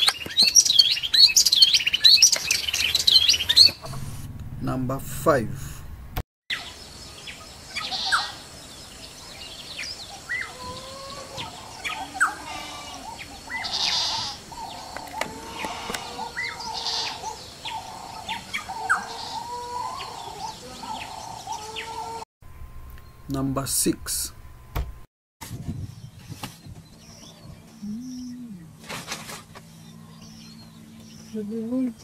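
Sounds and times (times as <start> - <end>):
harsh scratchy bird calls: 0.0 - 4.2, 9.8 - 22.2.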